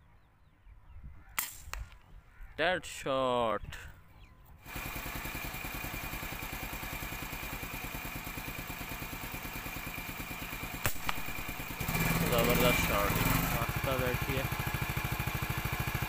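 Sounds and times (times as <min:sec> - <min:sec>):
air rifle shot: 0:01.3 - 0:02.0, 0:10.7 - 0:11.5
motorcycle engine idling: 0:04.6 - 0:16.0.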